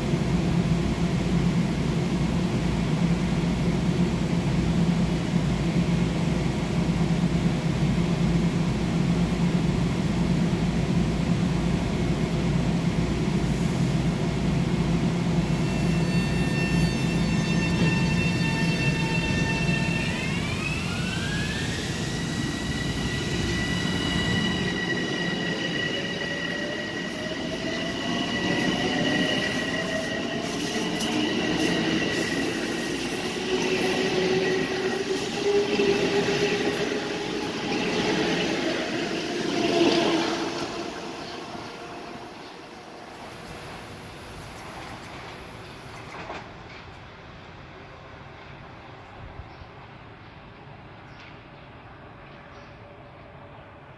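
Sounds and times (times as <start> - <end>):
rumble of train wheels: 0.0 - 53.9
electric train motors whining: 15.5 - 43.0.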